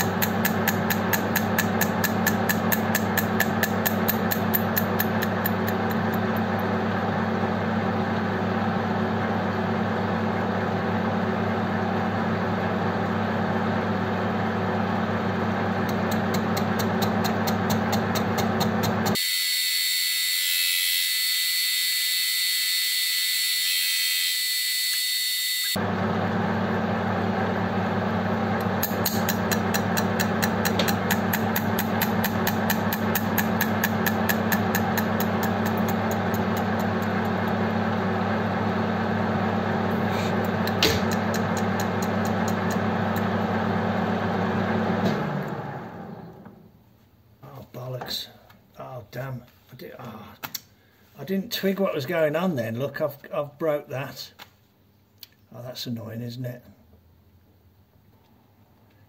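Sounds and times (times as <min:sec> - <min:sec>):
lathe machine hum: 0:00.0 - 0:19.2, 0:25.7 - 0:46.6.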